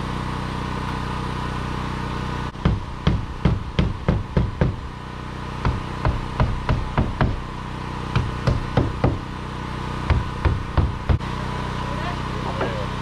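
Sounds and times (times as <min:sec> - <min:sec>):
steady hum: 0:00.7 - 0:13.0
sharp knocks of fastening siding: 0:02.6 - 0:04.8, 0:05.6 - 0:07.4, 0:08.1 - 0:09.2.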